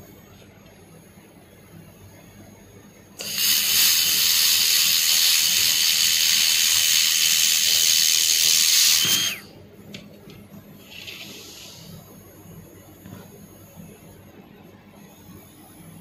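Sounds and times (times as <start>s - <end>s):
faint steady whine: 0.0s - 16.0s
high-pitched welding hiss: 3.2s - 9.5s.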